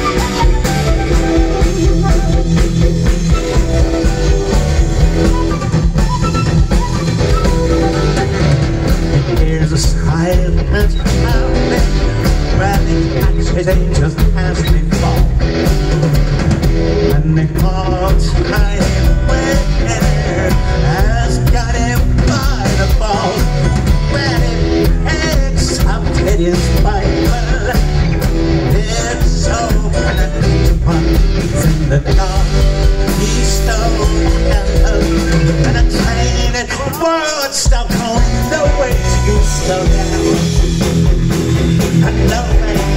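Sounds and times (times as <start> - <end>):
bass guitar: 0.0 - 42.9
drums: 0.0 - 42.9
electric guitars: 0.0 - 42.9
keyboards: 0.0 - 42.9.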